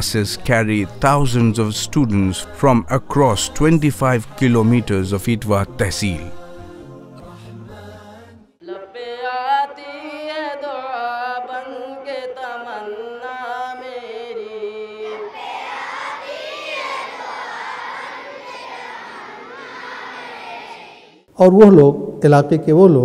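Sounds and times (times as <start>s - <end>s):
group of students chanting: 14.9s - 21.3s.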